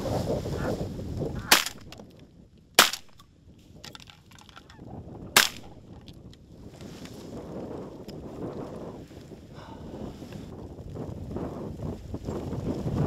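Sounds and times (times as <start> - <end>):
wind buffeting microphone: 0.0 - 13.0
shotgun shots: 1.4 - 2.0, 2.8 - 3.2, 5.4 - 5.8.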